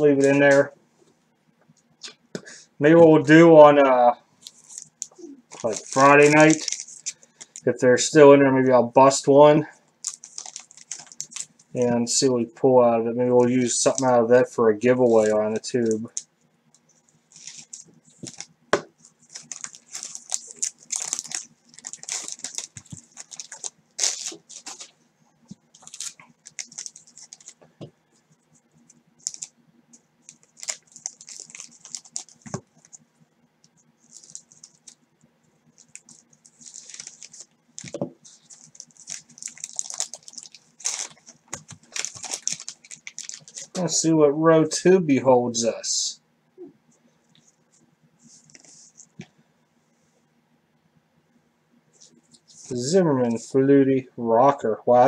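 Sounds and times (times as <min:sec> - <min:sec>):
faint low hum: 0:00.0 - 0:55.0
wrapper crinkling and rustling: 0:04.4 - 0:07.7, 0:10.0 - 0:11.7, 0:15.0 - 0:16.2, 0:17.2 - 0:27.6, 0:29.2 - 0:29.5, 0:30.2 - 0:33.0, 0:34.0 - 0:35.0, 0:35.7 - 0:43.8.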